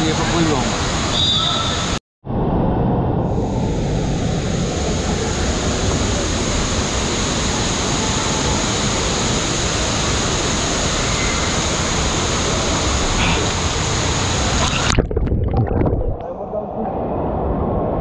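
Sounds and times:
rush of moving water: 0:00.0 - 0:02.0, 0:04.2 - 0:16.2.

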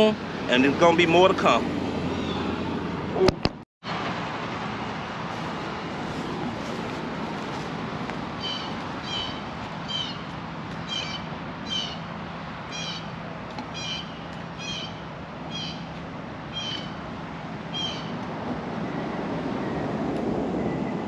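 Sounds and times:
animal high downward calls: 0:08.4 - 0:10.2.

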